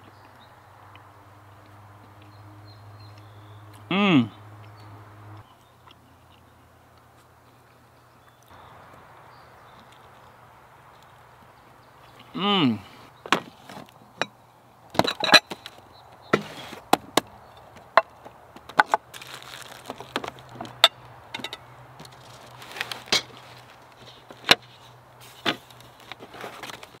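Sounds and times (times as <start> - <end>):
wooden basket lid opening and shutting: 15.0 - 15.7.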